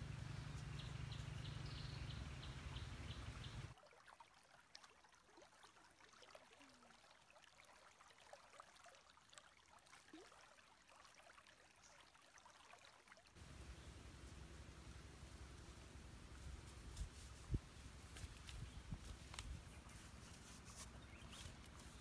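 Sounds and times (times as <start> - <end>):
stream trickling over stones: 2.8 - 15.5.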